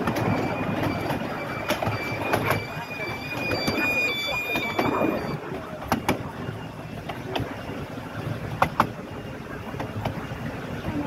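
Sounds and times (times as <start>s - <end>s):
rail joint clicks: 0.0s - 7.6s, 8.5s - 9.1s, 9.7s - 10.3s
wheels rumbling on rail: 0.0s - 11.0s
high ringing tone: 0.2s - 5.4s.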